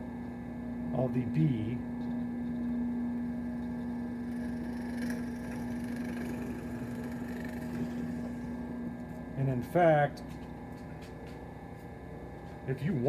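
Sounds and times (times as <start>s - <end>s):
drill press boring into wood: 4.2s - 8.4s.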